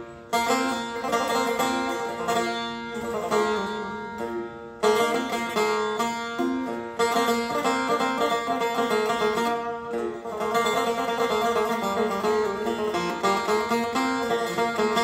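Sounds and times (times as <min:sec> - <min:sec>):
plucked lute melody: 0:00.0 - 0:15.0
strummed lute strokes: 0:00.0 - 0:15.0.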